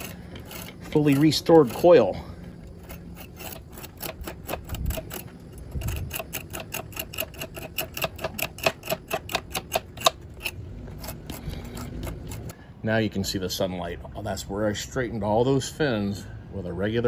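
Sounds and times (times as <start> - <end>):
fork clicking on metal fins: 2.9 - 12.5.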